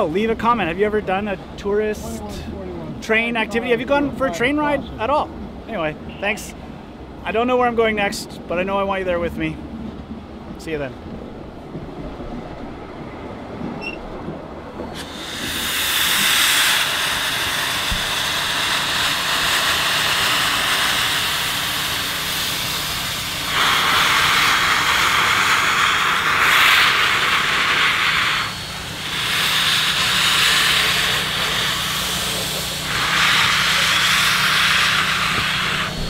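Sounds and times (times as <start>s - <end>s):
low rumble: 8.5s - 16.2s
steam locomotive hissing: 14.8s - 36.0s.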